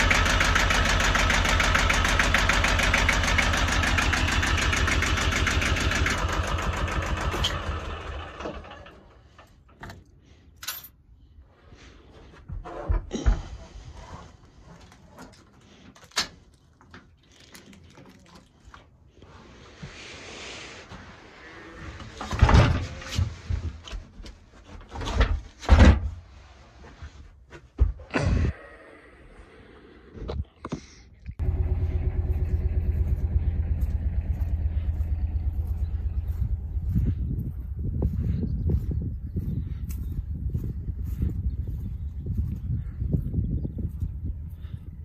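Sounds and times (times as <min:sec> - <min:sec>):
diesel engine idling: 0:00.0 - 0:09.7, 0:31.4 - 0:42.6.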